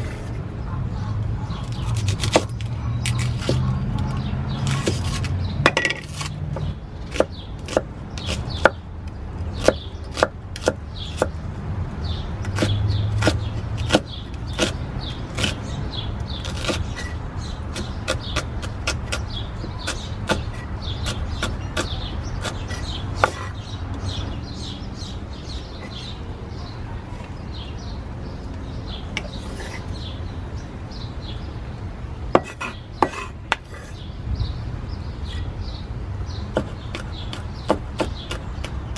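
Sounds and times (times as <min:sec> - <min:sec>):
knife chopping on wooden board: 0:01.6 - 0:08.8, 0:09.6 - 0:11.3, 0:12.4 - 0:14.8, 0:16.4 - 0:19.2, 0:19.8 - 0:23.5, 0:32.4 - 0:33.7, 0:36.5 - 0:38.9.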